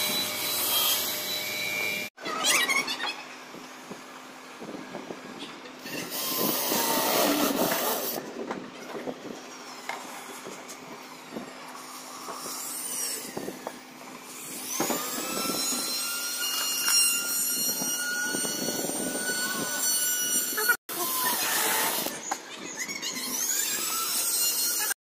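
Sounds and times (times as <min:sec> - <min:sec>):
cordless drill whining: 0:05.9 - 0:08.2.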